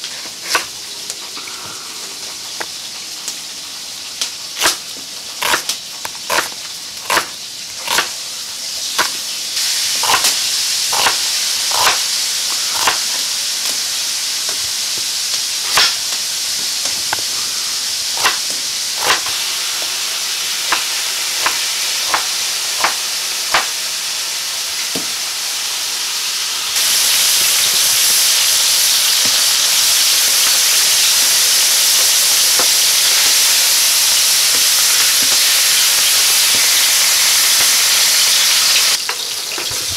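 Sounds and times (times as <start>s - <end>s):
hiss: 0.0s - 39.0s
meat sizzling in a pan: 0.0s - 39.9s
knife chopping on wooden board: 5.4s - 5.7s, 6.3s - 8.1s, 10.0s - 10.3s, 10.9s - 12.0s, 12.8s - 13.0s, 18.2s - 18.4s, 19.0s - 19.3s, 20.7s - 23.7s.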